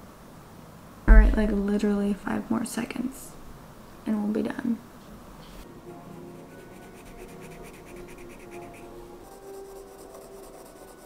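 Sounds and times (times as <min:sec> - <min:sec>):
soft background music: 0:05.6 - 0:11.0
pencil scratching on paper: 0:06.4 - 0:11.0.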